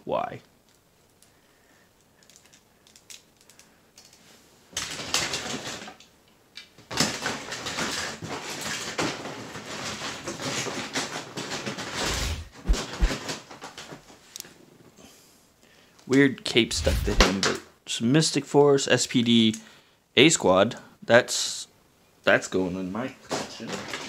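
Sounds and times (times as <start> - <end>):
plastic toy figures clattering: 2.2 - 4.2, 4.8 - 5.9
low thumps: 12.0 - 13.2, 16.7 - 17.4.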